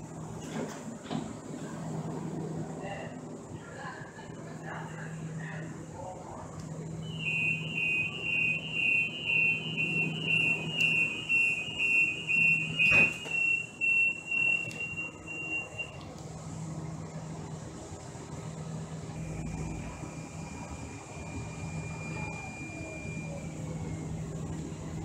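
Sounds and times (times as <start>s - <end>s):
rail car low hum: 0.0s - 25.0s
rapid high-pitched warning beeps: 7.0s - 16.0s, 19.2s - 24.5s
door shutting thump: 12.8s - 13.4s.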